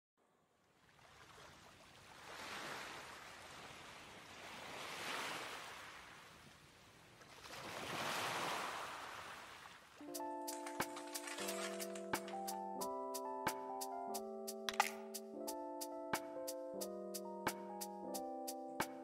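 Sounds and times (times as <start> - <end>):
sea waves washing on shore: 1.1 - 12.3.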